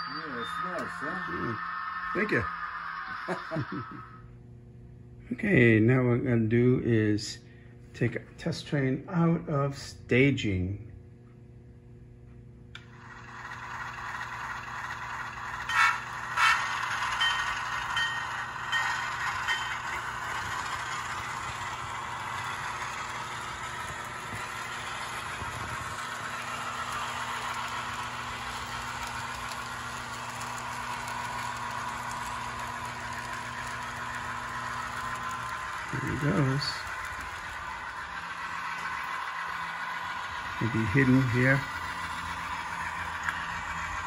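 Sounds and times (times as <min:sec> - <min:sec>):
faint steady hum: 0:00.0 - 0:15.9
model train wheels clattering on rails: 0:12.8 - 0:44.0.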